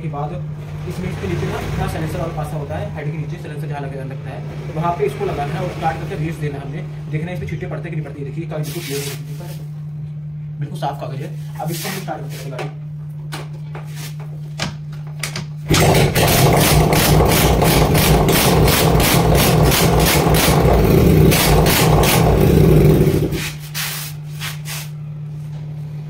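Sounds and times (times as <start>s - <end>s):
scooter engine idling and revving: 15.7s - 23.6s.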